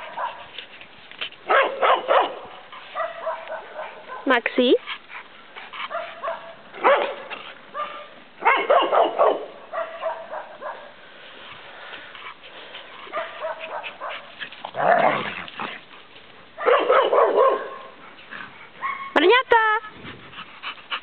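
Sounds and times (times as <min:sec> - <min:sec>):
dogs barking in play: 0:00.0 - 0:00.6, 0:01.4 - 0:11.6, 0:12.2 - 0:19.4
dogs yipping and whining: 0:18.8 - 0:19.2.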